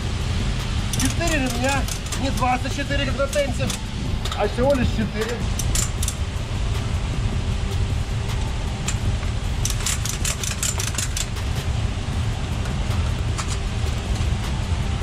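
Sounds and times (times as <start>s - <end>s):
engine idling: 0.0s - 15.0s
strap ratchet clicks: 0.9s - 4.4s, 5.2s - 6.2s, 9.6s - 11.4s.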